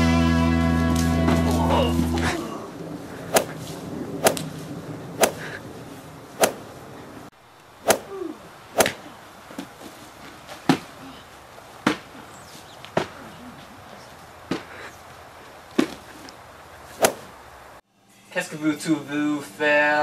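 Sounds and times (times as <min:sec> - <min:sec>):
punches smacking: 0:03.3 - 0:03.6, 0:04.2 - 0:04.4, 0:05.2 - 0:05.5, 0:06.4 - 0:06.6, 0:07.9 - 0:08.2, 0:17.0 - 0:17.3.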